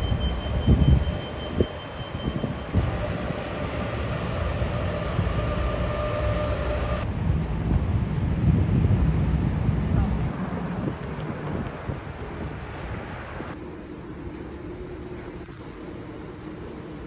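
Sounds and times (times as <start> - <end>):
faint steady whine: 0.0 - 7.1
traffic rumble: 0.0 - 15.8.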